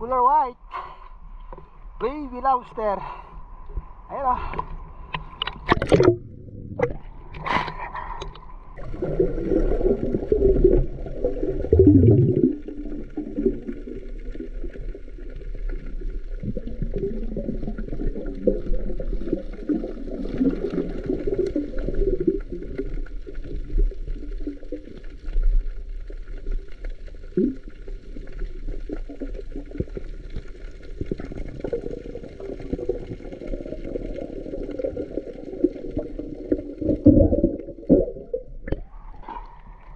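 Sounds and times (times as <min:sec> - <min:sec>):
water splashing against camera: 0:03.7 - 0:39.9
muffled underwater gurgling: 0:04.2 - 0:24.9, 0:30.9 - 0:39.9.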